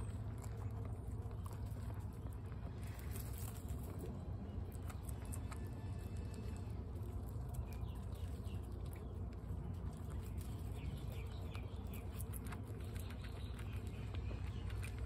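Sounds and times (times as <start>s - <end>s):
guinea pigs crunching pellets: 0.0s - 15.0s
steady low hum: 0.0s - 15.0s.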